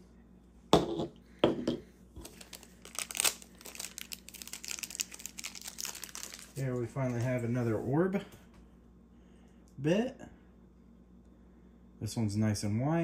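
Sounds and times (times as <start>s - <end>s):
plastic packaging ripping: 2.2s - 7.2s
plastic packaging crinkling: 2.2s - 7.4s.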